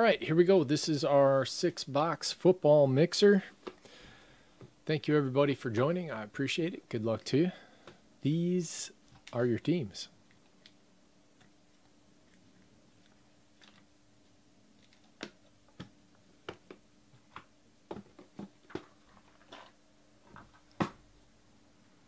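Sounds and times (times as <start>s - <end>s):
light clicks and crinkly snaps: 10.2s - 10.8s.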